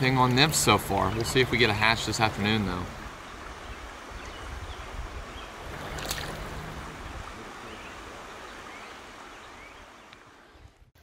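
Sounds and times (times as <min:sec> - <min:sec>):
stream water running: 0:00.0 - 0:11.0
water splash: 0:05.6 - 0:08.0.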